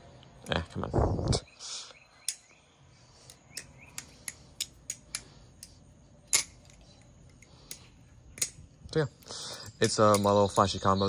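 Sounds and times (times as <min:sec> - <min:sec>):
butterfly knife handles clacking: 0:02.2 - 0:02.6, 0:03.2 - 0:11.0.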